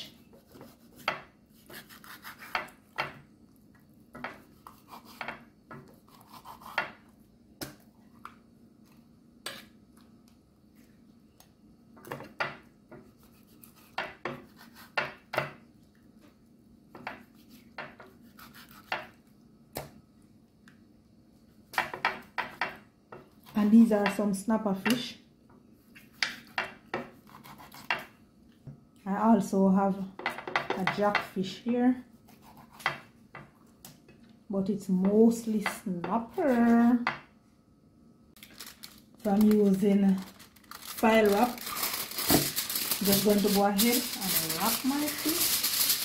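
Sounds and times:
knife scraping fish skin: 0.2s - 2.8s, 4.4s - 5.3s, 5.9s - 6.8s, 13.1s - 15.0s, 18.2s - 19.0s, 32.3s - 32.9s.

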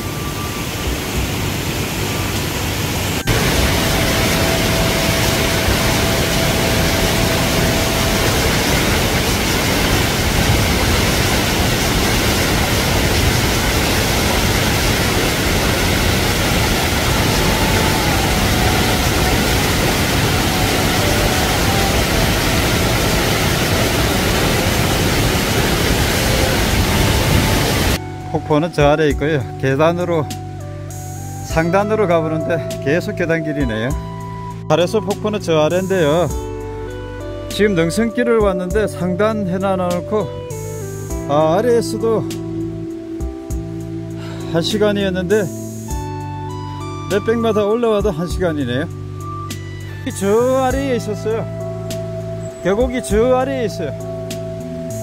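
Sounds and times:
stream rushing over rocks: 0.0s - 28.0s
waterfall pouring into pool: 0.0s - 28.0s.

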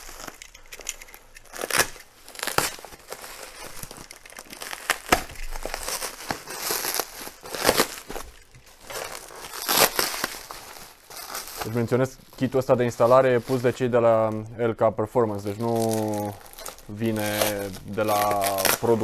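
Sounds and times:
box cutter slitting plastic: 0.0s - 8.2s
bubble wrap crinkling: 0.0s - 14.5s, 15.1s - 19.0s
sharp crackles: 0.0s - 14.5s, 15.1s - 19.0s.

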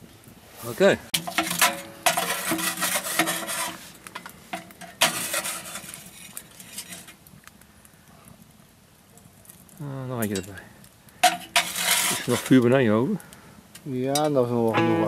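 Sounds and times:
metal clattering and scraping: 1.1s - 7.2s, 11.2s - 12.6s
metal lid clanking: 1.2s - 3.6s.

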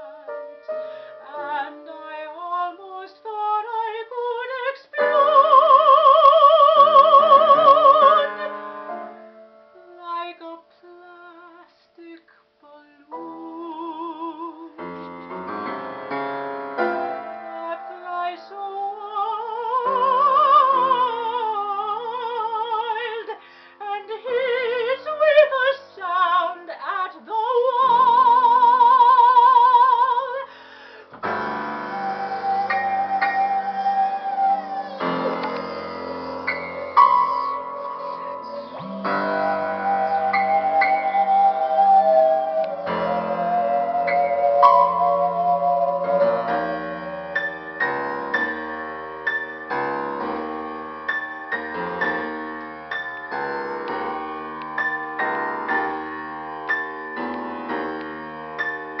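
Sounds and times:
woman singing opera: 0.0s - 8.7s, 9.8s - 15.1s, 17.4s - 30.6s, 31.2s - 48.6s
piano accompaniment: 0.0s - 10.5s, 13.0s - 23.3s, 30.6s - 59.0s.

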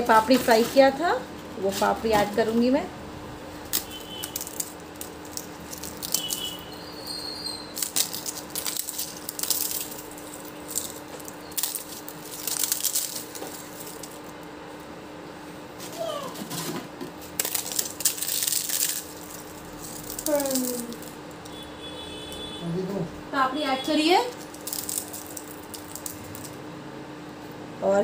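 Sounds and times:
crisp wafers crackling: 3.6s - 14.5s, 17.3s - 21.6s, 23.9s - 26.6s.

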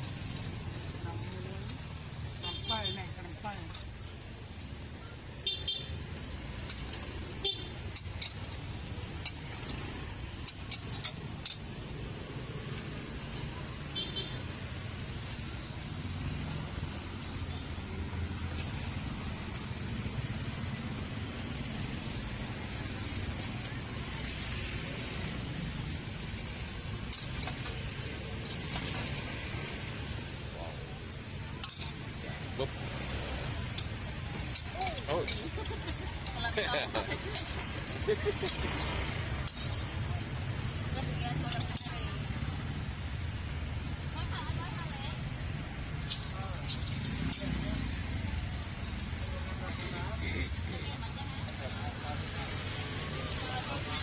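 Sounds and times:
stir-fry sizzling in a wok: 0.0s - 54.0s
street traffic rumble: 0.0s - 54.0s
metal spatula scraping a wok: 33.7s - 39.9s.

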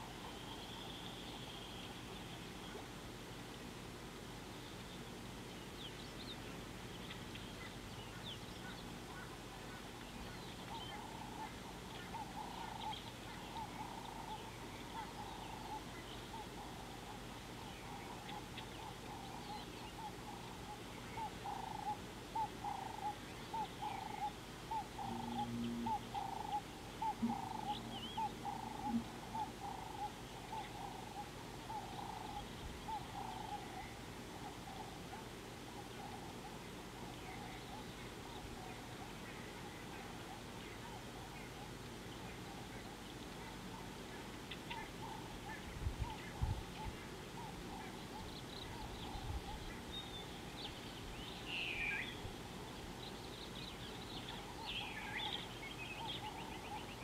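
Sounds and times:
faint high chirps: 22.6s - 34.8s
repeated mid-pitched animal call: 24.8s - 30.2s.

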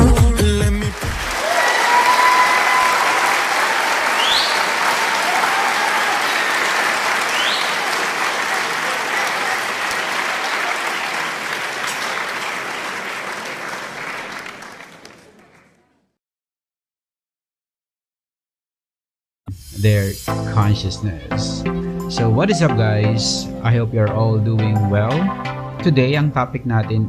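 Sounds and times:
audience applauding: 0.6s - 15.9s
short rising whistles: 4.2s - 4.7s, 7.3s - 7.8s.

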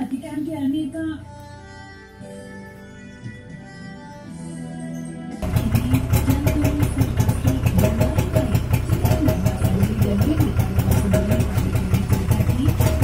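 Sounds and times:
engine idling loudly: 5.4s - 13.0s.

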